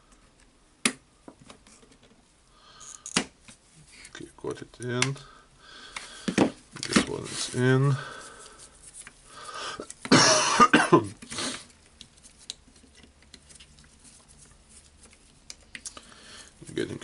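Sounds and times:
person coughing: 10.1s - 11.1s.

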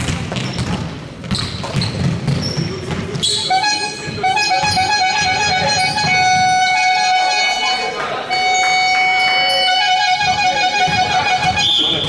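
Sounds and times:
basketball bouncing on court: 0.0s - 6.7s, 10.2s - 12.0s
sneakers squeaking on floor: 0.0s - 12.0s
music with held notes: 3.5s - 12.0s.

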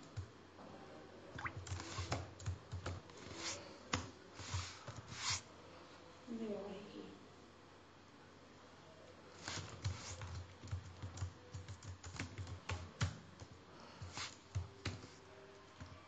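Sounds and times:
computer keyboard typing: 1.4s - 3.1s, 9.5s - 13.6s, 14.4s - 15.2s.

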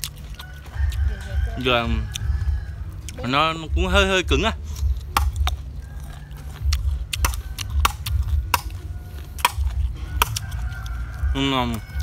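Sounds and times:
steady low rumble: 0.0s - 12.0s
machete chopping coconut: 4.8s - 5.6s, 6.7s - 10.7s.

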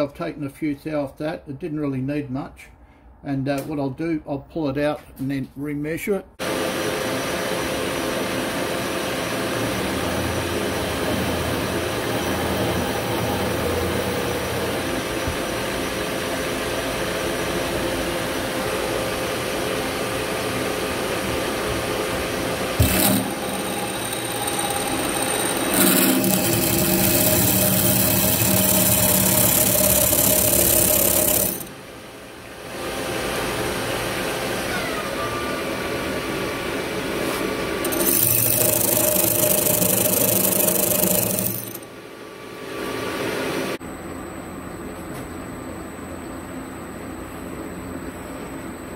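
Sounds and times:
metal lathe running: 22.7s - 31.8s, 37.8s - 41.9s
drill cutting into metal: 22.8s - 31.7s, 37.8s - 41.9s
lathe click: 22.8s - 31.7s, 37.8s - 41.8s.

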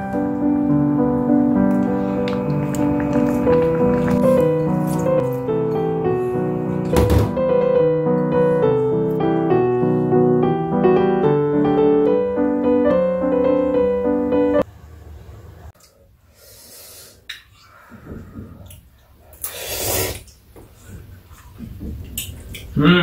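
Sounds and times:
instrumental background music: 0.0s - 14.6s.

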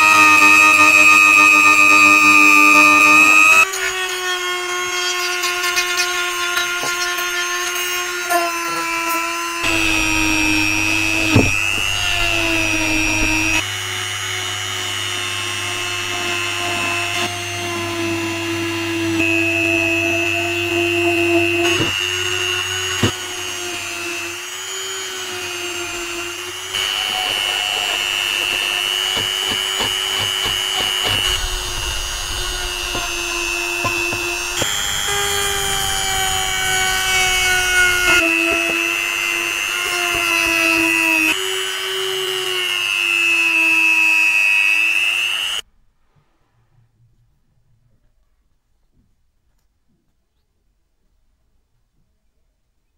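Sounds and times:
rotary tool grinding rust: 4.9s - 13.6s, 21.0s - 41.5s.

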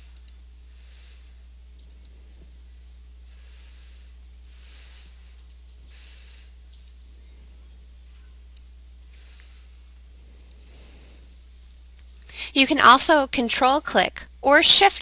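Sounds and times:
low electrical hum: 0.0s - 15.0s
computer mouse clicks: 0.1s - 0.4s, 1.7s - 2.2s, 5.3s - 6.0s, 6.7s - 7.0s, 10.4s - 10.8s.

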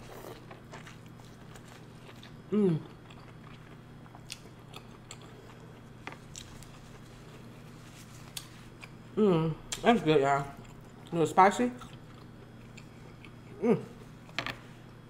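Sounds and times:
person humming: 2.5s - 2.9s, 9.2s - 9.6s, 13.5s - 14.0s.

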